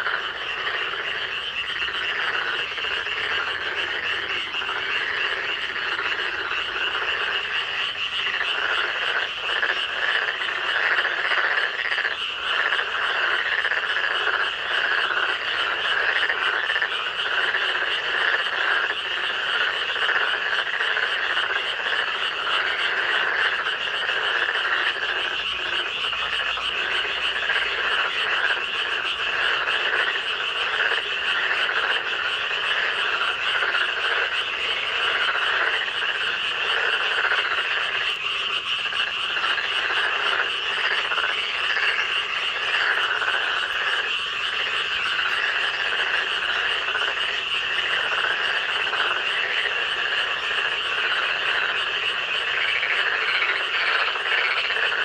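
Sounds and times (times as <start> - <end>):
frogs croaking: 0.0 - 55.0.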